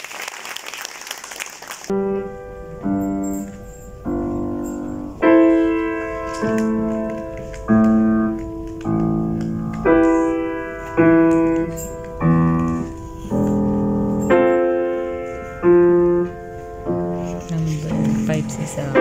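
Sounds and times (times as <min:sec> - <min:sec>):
slow piano chords: 0:01.9 - 0:19.0.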